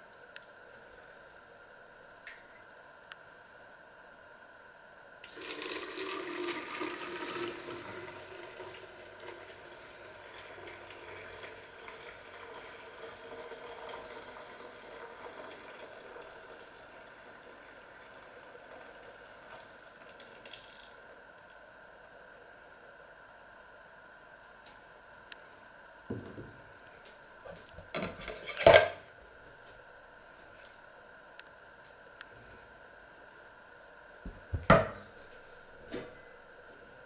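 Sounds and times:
liquid pouring through a funnel: 5.2s - 21.0s.

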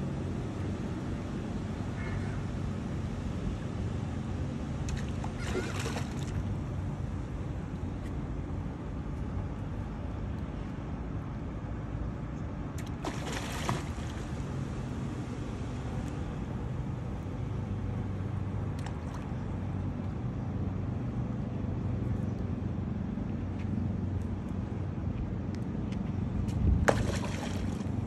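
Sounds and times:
engine humming: 0.0s - 28.0s
fish splash at water surface: 4.9s - 6.5s, 12.8s - 14.4s, 26.9s - 28.0s.

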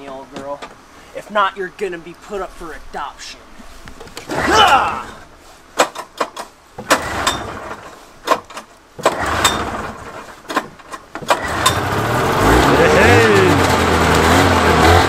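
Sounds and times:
recoil starter pulled: 5.8s - 15.0s
engine turning over: 6.8s - 15.0s.

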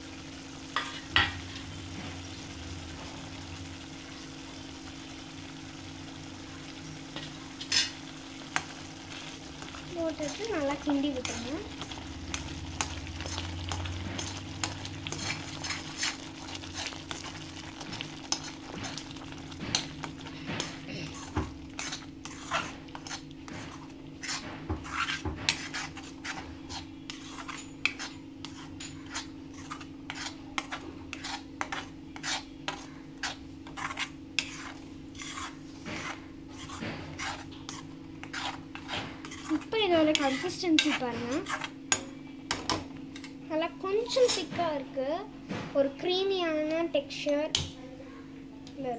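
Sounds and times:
steady low hum: 0.0s - 48.9s
metal ladle scraping pan: 10.1s - 19.0s, 20.6s - 41.7s.

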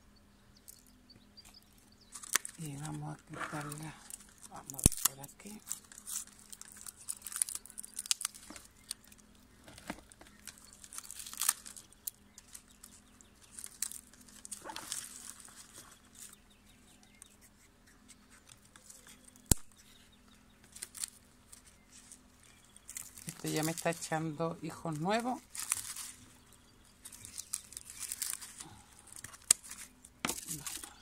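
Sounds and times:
dry leaves crackling and rustling: 2.1s - 17.2s, 18.3s - 31.0s.

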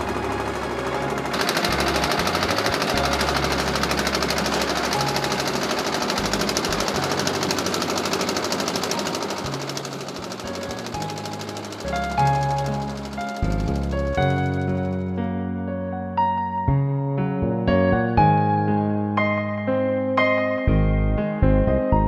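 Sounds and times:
concrete mixer rattling: 0.0s - 15.2s.

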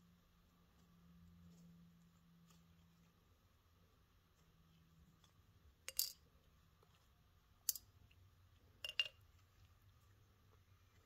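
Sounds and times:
metal parts clinking in dish: 5.9s - 6.2s.

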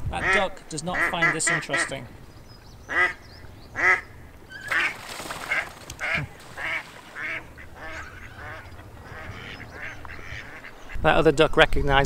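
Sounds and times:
duck quacking: 0.2s - 2.0s, 2.9s - 3.2s, 3.8s - 4.1s, 4.7s - 11.0s
water splash: 4.6s - 7.6s.

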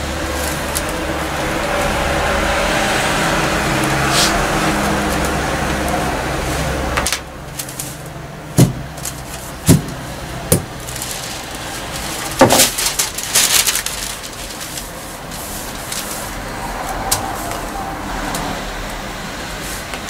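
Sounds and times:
machine hum: 0.0s - 20.0s
paper sheets rustling: 0.2s - 2.0s, 3.8s - 18.4s.

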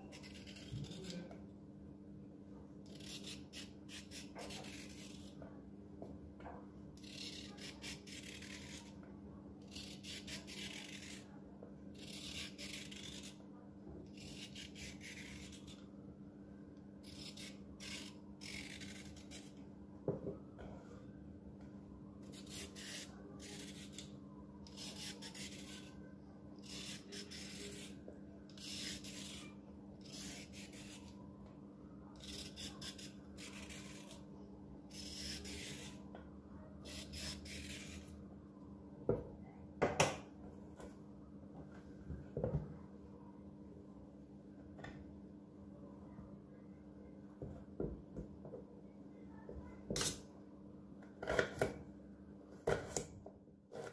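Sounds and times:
peeler scraping a carrot: 0.0s - 1.4s, 2.9s - 5.4s, 7.0s - 9.0s, 9.6s - 11.3s, 11.9s - 13.4s, 14.1s - 15.9s, 17.0s - 19.6s, 22.2s - 26.0s, 26.6s - 31.2s, 32.2s - 34.2s, 34.9s - 36.0s, 36.8s - 38.1s.

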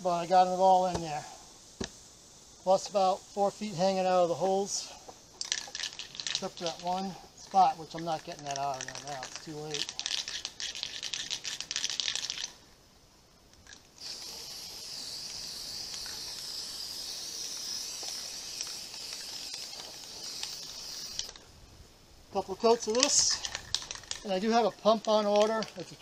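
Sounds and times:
aerosol spray can hissing: 4.0s - 12.5s, 14.0s - 21.4s.

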